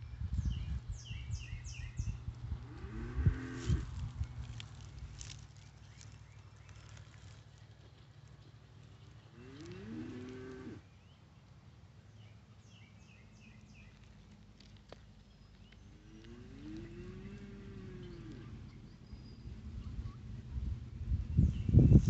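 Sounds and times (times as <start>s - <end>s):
cattle mooing: 9.4s - 10.8s.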